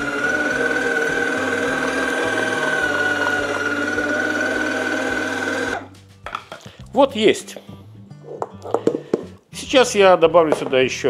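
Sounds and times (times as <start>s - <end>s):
meat grinder motor whine: 0.0s - 5.9s.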